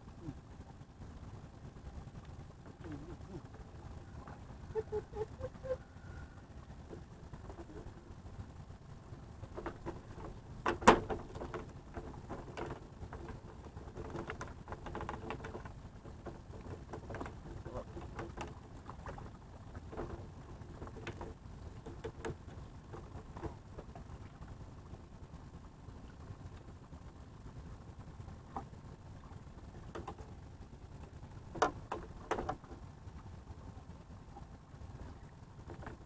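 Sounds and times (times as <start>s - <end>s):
fishing tackle knocks and clicks: 9.6s - 18.6s, 31.5s - 32.6s.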